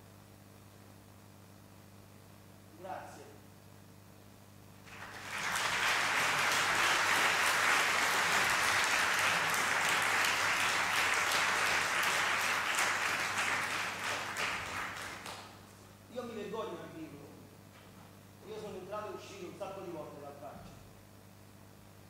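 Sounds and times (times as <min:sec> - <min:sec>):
audience applauding: 0:04.8 - 0:15.5.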